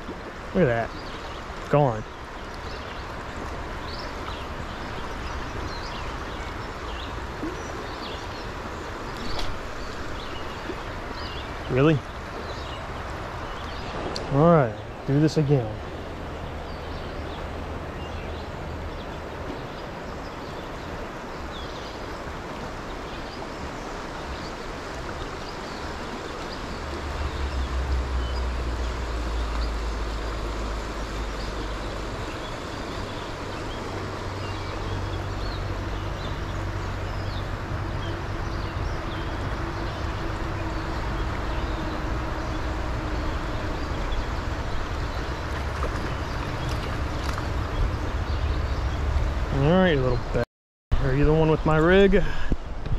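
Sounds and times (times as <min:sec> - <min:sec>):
stream water rushing: 0:00.0 - 0:50.4, 0:51.0 - 0:52.9
low rumble: 0:26.7 - 0:32.2.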